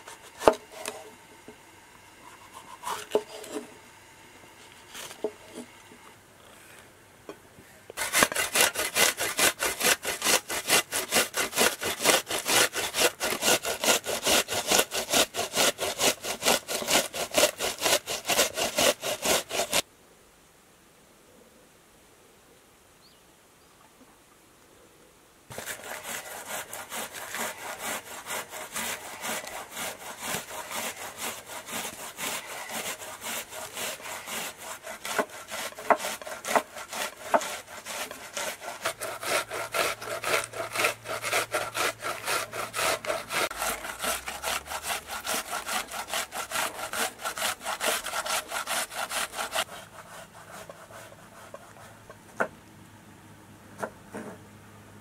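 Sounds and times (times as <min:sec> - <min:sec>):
vegetable grating on metal grater: 0:08.0 - 0:19.8, 0:25.5 - 0:52.0.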